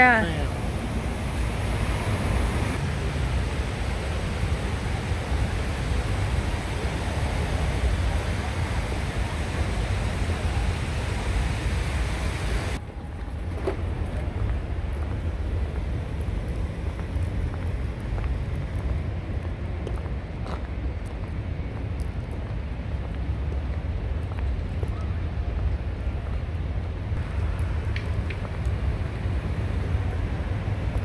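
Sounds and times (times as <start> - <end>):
waterfall rushing: 0.0 - 12.8
wind rumbling on microphone: 0.0 - 31.0.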